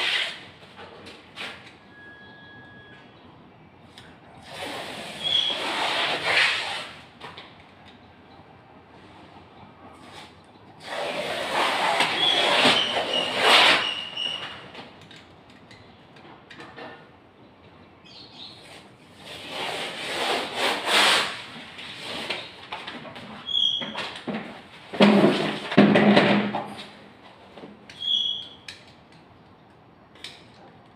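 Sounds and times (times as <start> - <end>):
wallpaper ripping off a wall: 4.4 - 7.0, 10.8 - 14.1, 19.2 - 22.5
short squeak: 5.0 - 6.9, 11.6 - 14.7, 23.4 - 24.1, 27.9 - 28.7.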